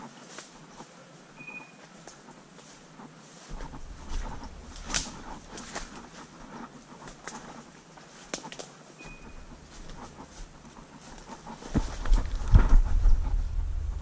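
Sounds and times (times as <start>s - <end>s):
short high beep: 1.4s - 1.8s, 9.0s - 9.4s
footsteps through dry leaves: 2.6s - 13.1s
branches swishing: 3.4s - 13.8s
microphone rumble: 3.5s - 6.6s, 9.2s - 14.0s
twigs snapping: 3.5s - 7.6s, 8.2s - 8.7s.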